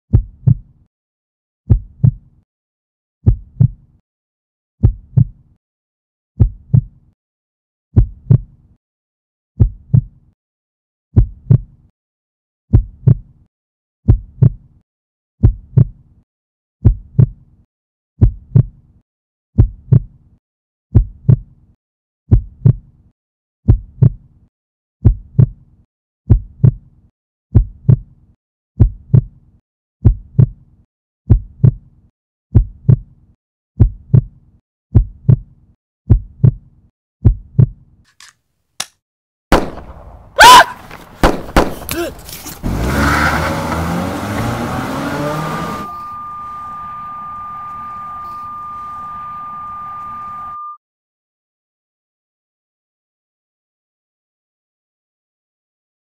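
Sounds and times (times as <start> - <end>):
heartbeat thumps: 0.1 - 0.7, 1.7 - 2.3, 3.2 - 3.9, 4.8 - 5.4, 6.4 - 7.0, 8.0 - 8.6, 9.6 - 10.2, 11.2 - 11.8, 12.7 - 13.3, 14.1 - 14.6, 15.4 - 16.0, 16.8 - 17.4, 18.2 - 18.8, 19.6 - 20.1, 20.9 - 21.5, 22.3 - 22.9, 23.7 - 24.2, 25.0 - 25.6, 26.3 - 26.8, 27.5 - 28.1, 28.8 - 29.4, 30.0 - 30.6, 31.3 - 31.8, 32.5 - 33.1, 33.8 - 35.5, 36.1 - 36.6, 37.2 - 37.8.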